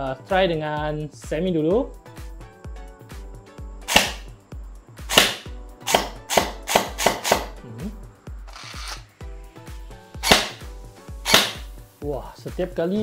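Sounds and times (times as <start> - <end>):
gel blaster shots popping: 3.8 - 4.3, 5.1 - 7.5, 10.2 - 10.6, 11.3 - 11.7.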